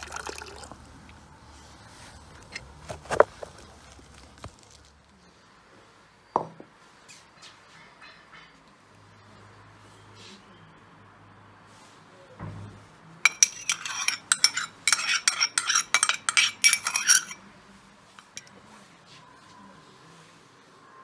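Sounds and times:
metal spoon scraping ceramic ramekin: 0:13.2 - 0:17.5, 0:18.2 - 0:18.5.

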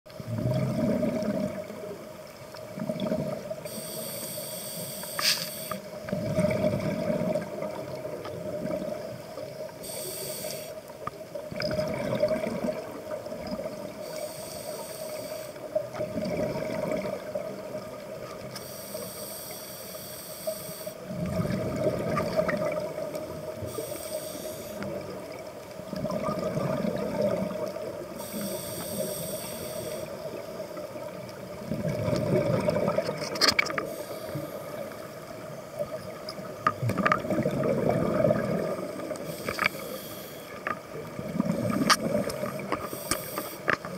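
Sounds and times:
gurgling exhaled bubbles: 0:00.2 - 0:02.0, 0:02.6 - 0:03.7, 0:05.9 - 0:09.6, 0:11.4 - 0:14.2, 0:15.7 - 0:18.5, 0:21.0 - 0:23.8, 0:24.8 - 0:28.3, 0:30.1 - 0:39.9, 0:40.6 - 0:42.9
regulator hissing inhale: 0:03.7 - 0:06.0, 0:09.8 - 0:10.9, 0:14.0 - 0:15.7, 0:18.6 - 0:21.0, 0:23.6 - 0:25.0, 0:28.2 - 0:30.3, 0:33.8 - 0:35.0, 0:39.2 - 0:40.7, 0:42.7 - 0:43.7.

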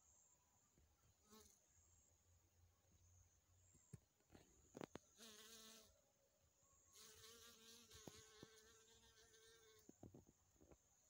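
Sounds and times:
bee wings buzzing: 0:07.0 - 0:10.0.

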